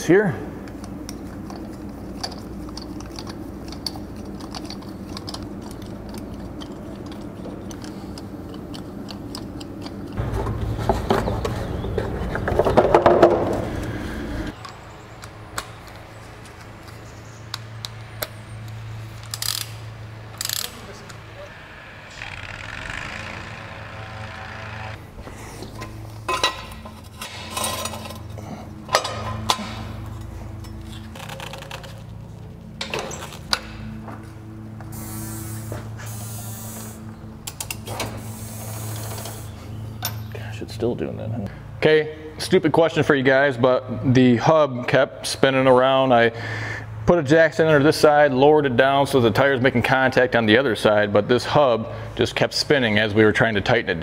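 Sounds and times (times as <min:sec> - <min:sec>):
low hum: 0:00.0 - 0:42.4
metallic clicks of socket and nuts: 0:00.8 - 0:10.2, 0:14.6 - 0:20.8.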